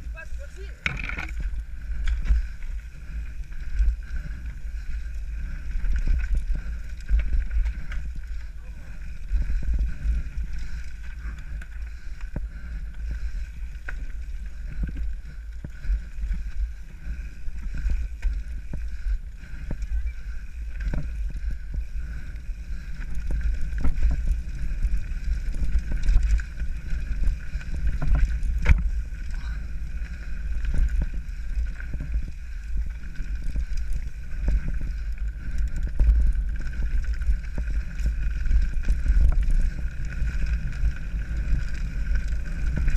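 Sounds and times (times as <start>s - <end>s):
wind rumble on microphone: 0.0s - 42.9s
bike knocks and rattles: 0.8s - 2.5s.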